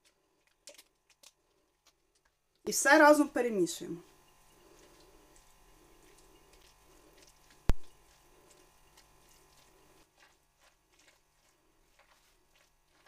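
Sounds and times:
spoon squishing salad: 0:00.0 - 0:02.5, 0:04.2 - 0:13.0.

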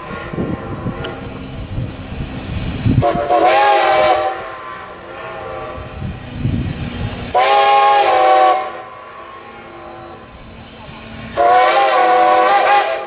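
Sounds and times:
locomotive exhaust chuffing: 0:00.0 - 0:13.0
steam whistle blasts: 0:02.7 - 0:13.0.

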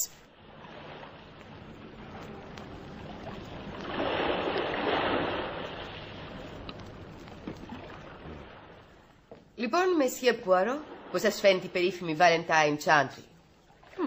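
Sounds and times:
waves washing onto beach: 0:00.4 - 0:08.8.

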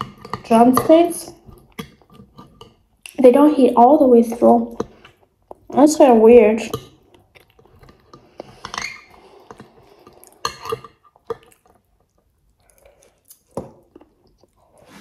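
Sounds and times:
wet chewing: 0:06.7 - 0:14.8.

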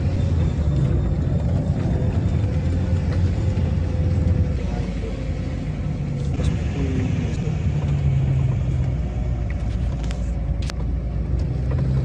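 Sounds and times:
car engine and road rumble: 0:00.0 - 0:12.0.

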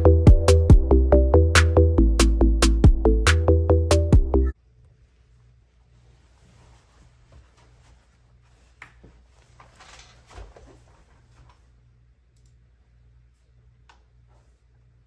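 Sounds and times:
low electrical hum: 0:04.5 - 0:15.0
rustling movement: 0:05.7 - 0:11.8.

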